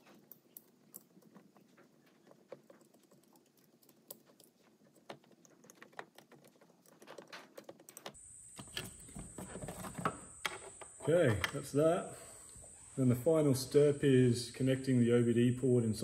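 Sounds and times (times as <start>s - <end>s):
hands clicking and rustling wiring: 0.0s - 11.7s
steady high hum: 8.2s - 16.0s.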